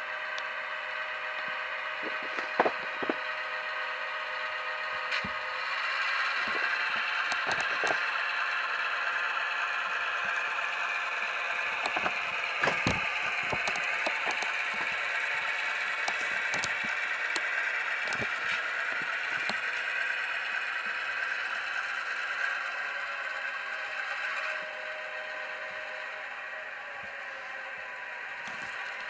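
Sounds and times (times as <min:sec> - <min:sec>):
diesel engine sound from small speaker: 0:00.0 - 0:29.0
sharp clicks: 0:11.8 - 0:15.0.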